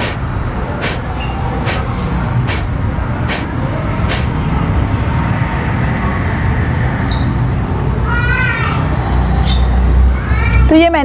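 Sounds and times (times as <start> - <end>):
sharp breath exhalations through nose: 0.0 - 2.7, 3.3 - 3.5, 4.1 - 4.4.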